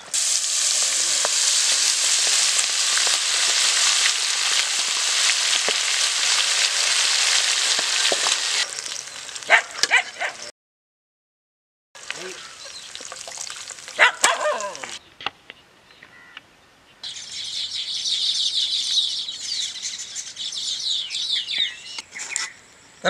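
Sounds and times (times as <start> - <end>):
birds chirping: 12.1 - 23.0.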